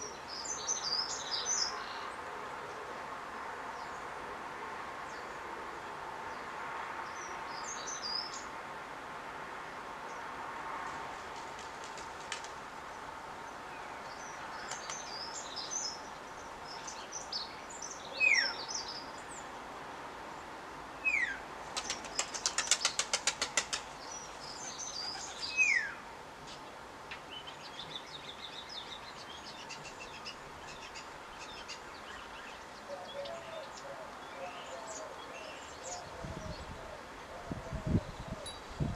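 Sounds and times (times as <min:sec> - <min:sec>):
birds twittering chirps: 0:00.0 - 0:02.2, 0:06.3 - 0:08.5, 0:13.8 - 0:19.5, 0:21.0 - 0:26.0, 0:27.1 - 0:38.9.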